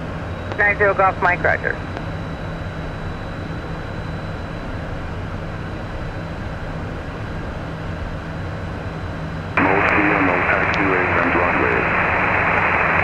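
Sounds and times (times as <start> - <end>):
jet cockpit engine drone: 0.0 - 13.0
radio transmission: 0.4 - 2.0, 9.6 - 13.0.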